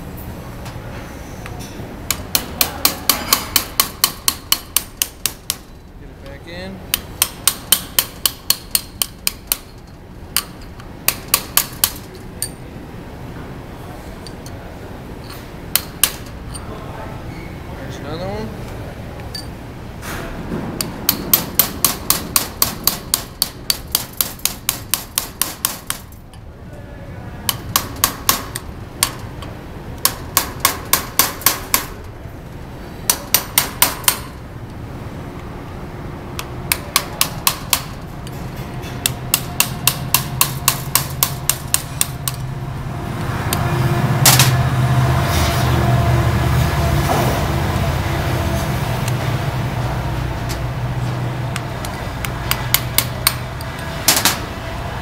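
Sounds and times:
steady mechanical noise with hum: 0.0s - 55.0s
hammer tapping metal punch: 2.1s - 5.8s, 6.9s - 12.6s, 15.7s - 16.3s, 20.8s - 26.1s, 27.5s - 32.0s, 33.1s - 34.4s, 36.4s - 42.4s, 51.5s - 53.4s
metal clinks: 19.3s - 19.6s.

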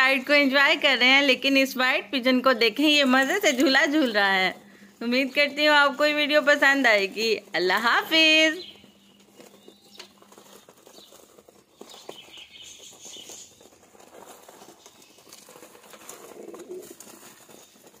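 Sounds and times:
pigeons cooing: 8.6s - 18.0s
small knocks and rustles: 8.6s - 18.0s.

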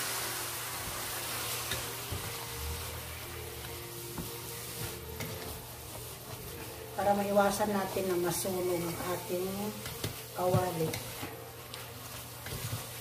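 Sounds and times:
food sizzling in frying pan: 0.0s - 13.0s
spatula tapping pan: 9.7s - 11.8s.

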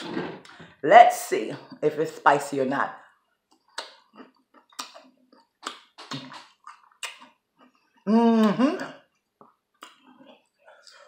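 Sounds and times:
crunching bites and chewing: 3.6s - 7.8s.

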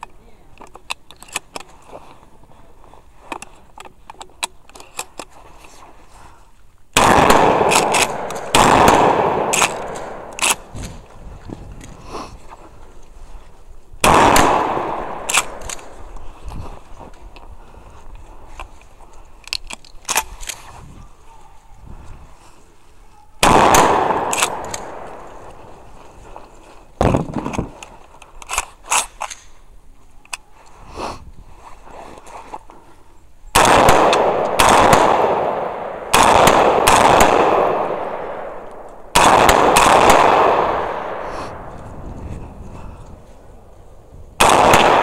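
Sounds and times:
loud echoing gunshots: 7.0s - 10.7s, 14.0s - 16.0s, 23.4s - 25.5s, 33.5s - 41.7s, 44.4s - 45.0s.

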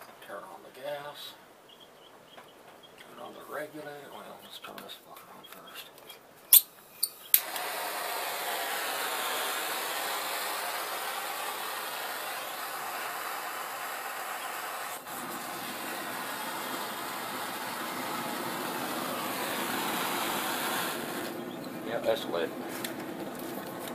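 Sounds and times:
propane torch flame hissing: 7.2s - 22.5s.

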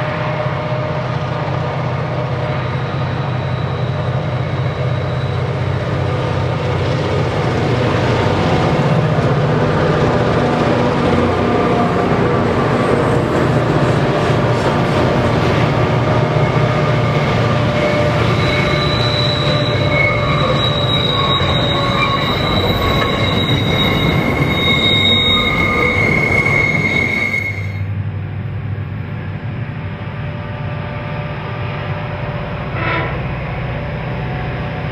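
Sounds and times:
diesel locomotive engines throbbing: 0.0s - 34.9s
train wheel squeal: 1.9s - 9.4s, 12.7s - 27.9s, 31.9s - 34.9s.

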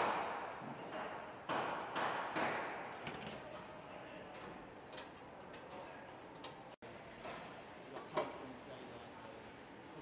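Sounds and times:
echoing knocks in factory hall: 0.0s - 4.6s.

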